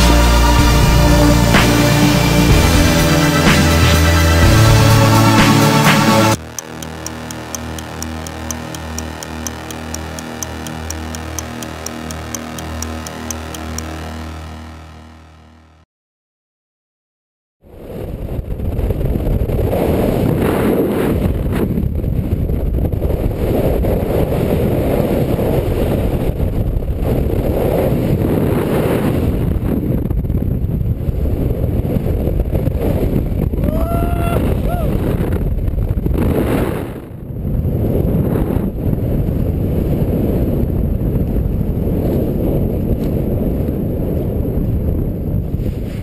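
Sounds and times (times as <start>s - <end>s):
wind buffeting microphone: 17.7s - 46.0s.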